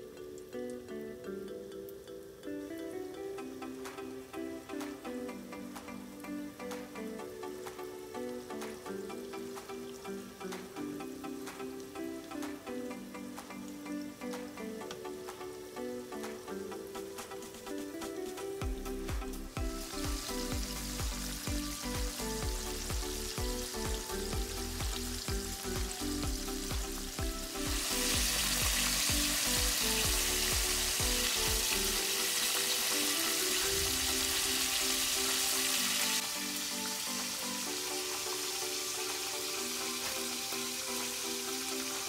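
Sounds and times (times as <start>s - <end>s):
chicken sizzling in hot oil: 19.7s - 42.0s.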